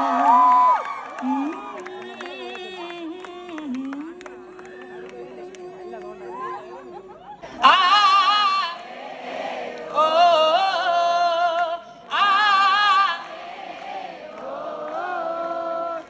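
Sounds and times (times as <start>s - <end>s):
woman singing into microphone: 0.0s - 8.8s.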